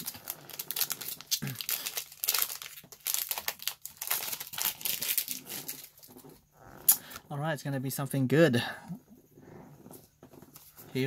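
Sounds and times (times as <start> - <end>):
foil wrapper crinkling: 0.0 - 6.1.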